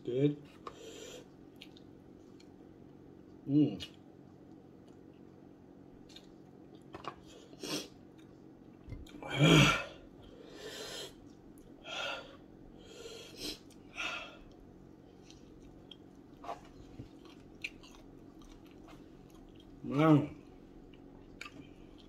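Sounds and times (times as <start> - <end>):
chewing: 1.4 - 2.6, 6.0 - 9.2, 13.5 - 19.8, 20.4 - 22.0
man breathing hard: 11.8 - 14.5.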